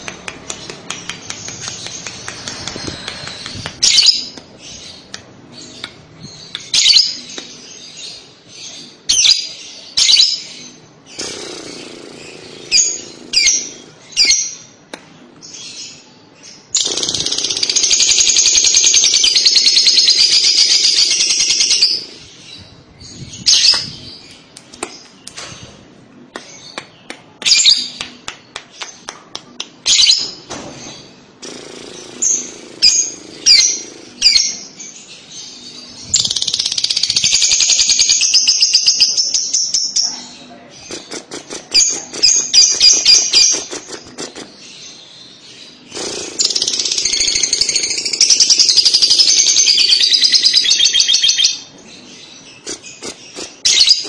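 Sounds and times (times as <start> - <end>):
lovebird chirping and squawking: 0.6 - 7.4, 16.7 - 24.2, 31.4 - 34.9, 45.7 - 54.0.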